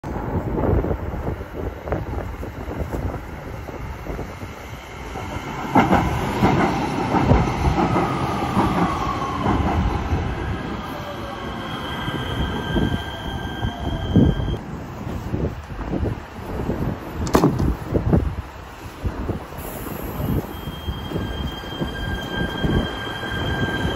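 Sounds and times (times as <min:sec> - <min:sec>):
train wheels clicking over rail joints: 0:05.1 - 0:09.9
high brake squeal: 0:10.4 - 0:14.6, 0:19.6 - 0:23.9.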